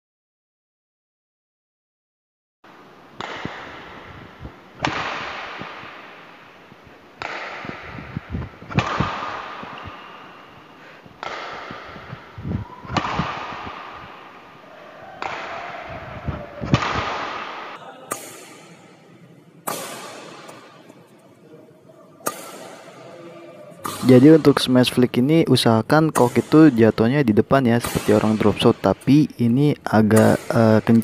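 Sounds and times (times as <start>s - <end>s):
racket hitting shuttlecock: 2.7s - 21.2s, 22.2s - 24.6s, 26.1s - 26.8s, 27.8s - 29.0s, 30.2s - 31.0s.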